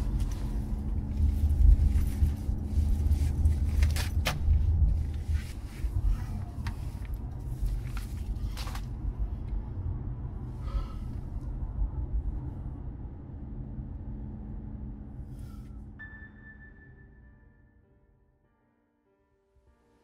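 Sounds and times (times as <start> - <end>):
rustles and clicks: 0.0 - 9.0
car road and engine rumble: 0.0 - 16.4.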